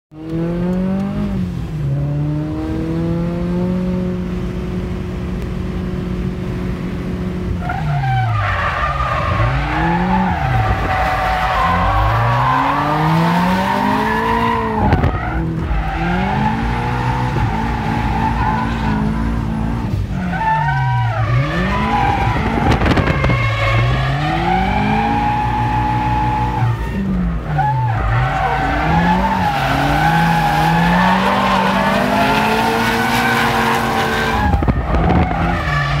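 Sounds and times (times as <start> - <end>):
car engine revving hard: 9.0 - 20.1, 20.8 - 36.0.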